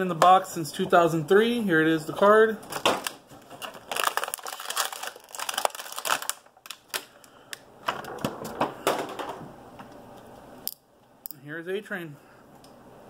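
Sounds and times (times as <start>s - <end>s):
plastic blister crackling: 2.7s - 9.3s.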